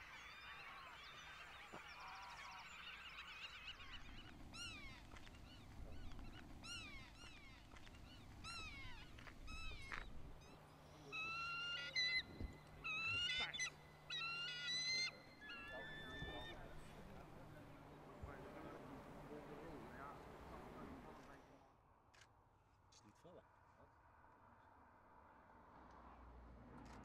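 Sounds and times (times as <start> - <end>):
birds calling: 0.0 - 21.6.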